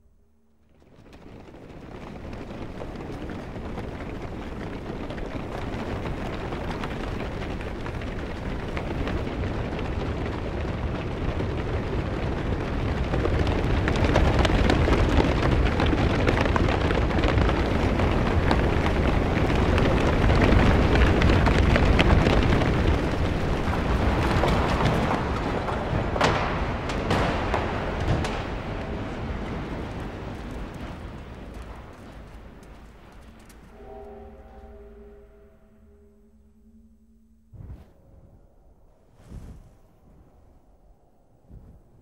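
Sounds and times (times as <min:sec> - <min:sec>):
armoured soldiers marching clatter: 0:00.6 - 0:33.8.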